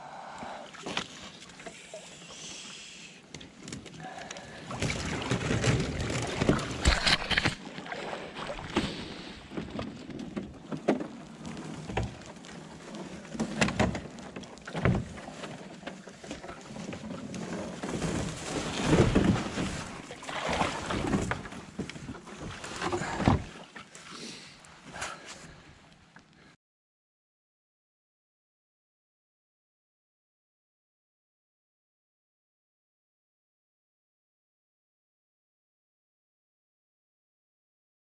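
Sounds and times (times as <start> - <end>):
water sloshing against hull: 0.2 - 26.6
paddle splashing: 0.4 - 26.1.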